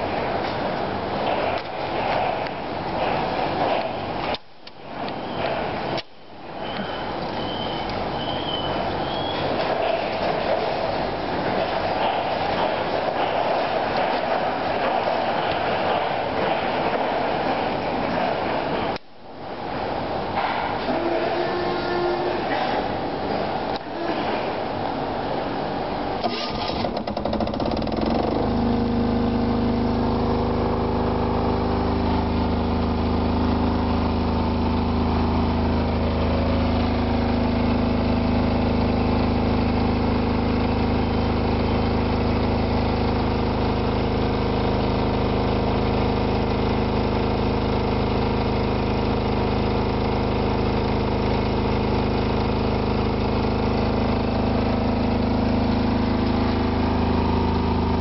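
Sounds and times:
diesel generator running: 0:00.0 - 0:58.0
starter motor cranking: 0:26.2 - 0:28.6.

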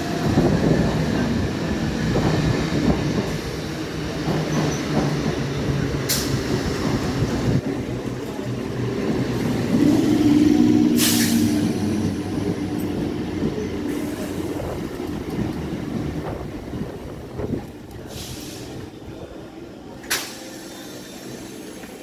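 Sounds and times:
train wheels rumbling on rails: 0:00.0 - 0:22.0
brief hiss: 0:11.0 - 0:11.5.

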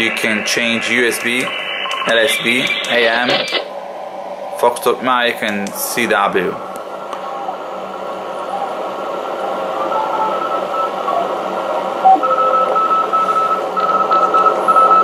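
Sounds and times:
faint morse code tones: 0:00.0 - 0:03.7, 0:12.0 - 0:15.0
morse code beeping: 0:00.0 - 0:03.7
radio band hiss: 0:00.0 - 0:12.0.

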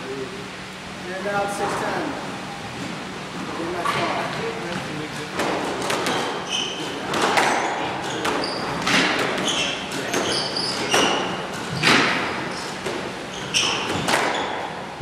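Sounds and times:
squash ball cracking off racquets: 0:05.2 - 0:14.9
sneaker squeaks on wooden floor: 0:06.0 - 0:14.9.

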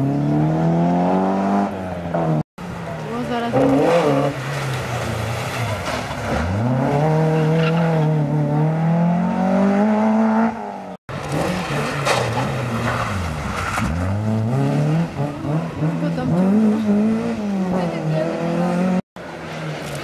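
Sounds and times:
second rally car engine revving: 0:03.4 - 0:19.0
rally car engine accelerating: 0:03.4 - 0:20.0.

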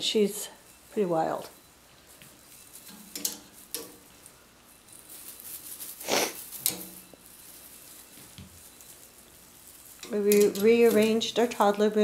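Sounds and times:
toy rustling and tapping: 0:01.9 - 0:12.0
hissing noise: 0:05.3 - 0:07.4.

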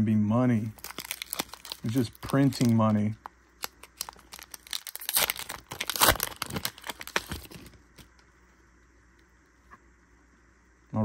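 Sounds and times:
foil wrapper tearing and crinkling: 0:00.7 - 0:08.1.

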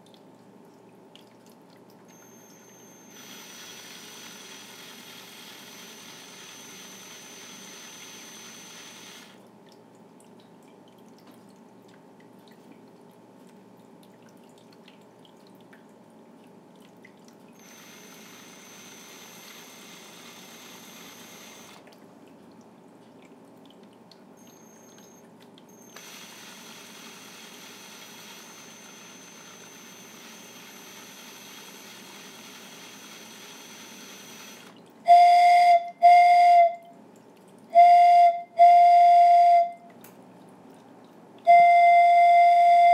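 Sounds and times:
faint steady hiss: 0:02.0 - 0:11.8
whistle blasts: 0:35.1 - 0:36.8, 0:37.8 - 0:39.8, 0:41.5 - 0:42.9.

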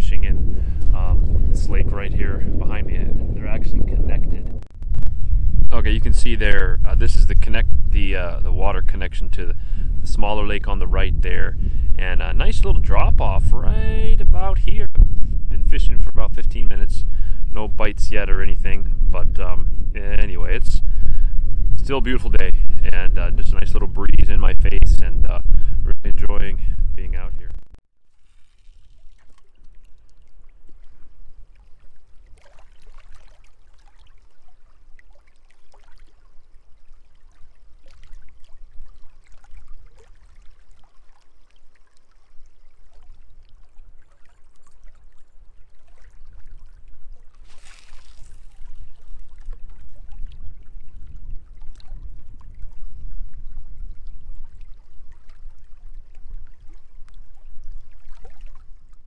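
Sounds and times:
wind rumbling on microphone: 0:00.0 - 0:27.8, 0:34.1 - 0:59.0
waves lapping against rocks: 0:28.1 - 0:59.0.

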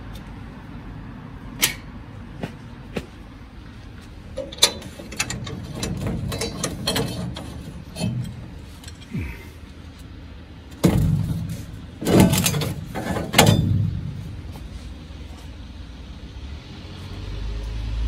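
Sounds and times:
mechanical clicks and knocks: 0:04.3 - 0:09.1, 0:10.7 - 0:14.7.

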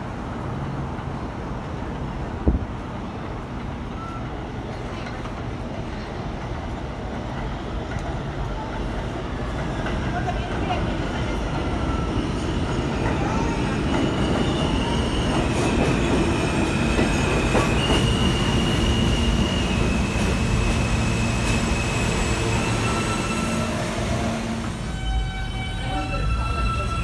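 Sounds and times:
subway train wheels rumbling: 0:00.0 - 0:27.0
wheels and brakes squealing: 0:03.9 - 0:05.0, 0:11.5 - 0:27.0.

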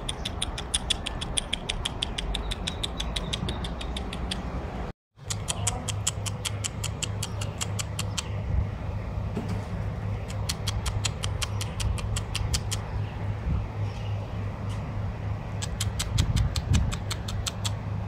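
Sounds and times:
squeaky lip-kissing clicks: 0:00.0 - 0:04.5, 0:05.2 - 0:08.3, 0:10.3 - 0:12.9, 0:15.6 - 0:17.8
steady low hum: 0:00.0 - 0:18.0.

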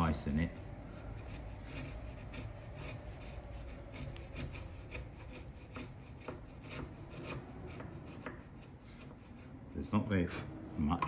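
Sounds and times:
hand tool scraping wood: 0:00.8 - 0:10.6.

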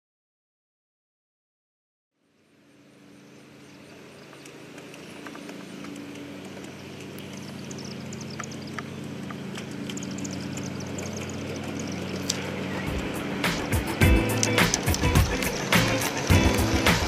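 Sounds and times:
model locomotive humming: 0:02.8 - 0:17.0
wheels clicking over rails: 0:04.2 - 0:17.0.

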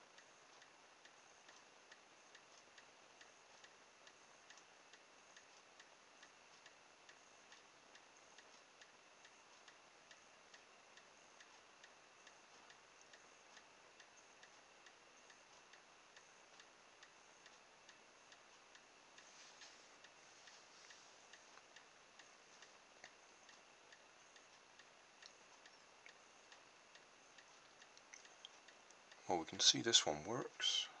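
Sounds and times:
faint even ticking: 0:00.0 - 0:31.0
low hiss: 0:00.0 - 0:31.0.

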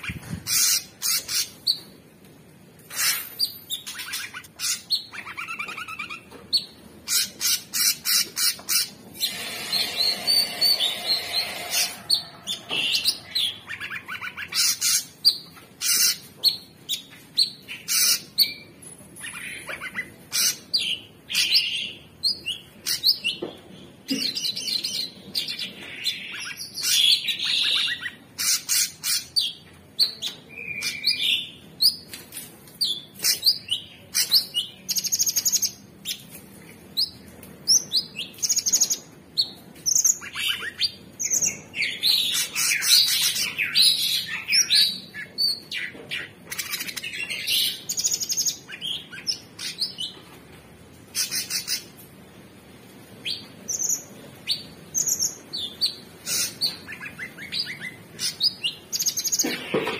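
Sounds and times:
bird singing: 0:03.0 - 0:23.5.

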